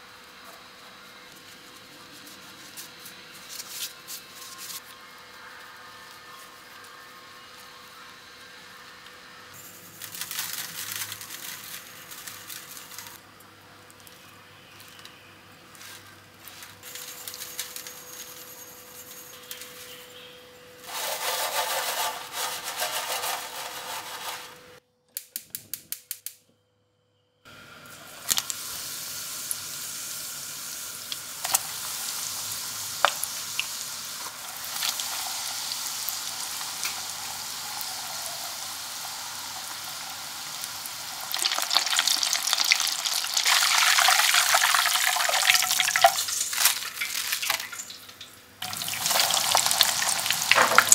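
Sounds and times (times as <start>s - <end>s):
deep-frying sizzle with pops: 0.0s - 17.9s, 27.5s - 50.9s
bread crumbs pattering onto tray: 10.0s - 13.2s
metal tray shaken: 20.9s - 24.6s.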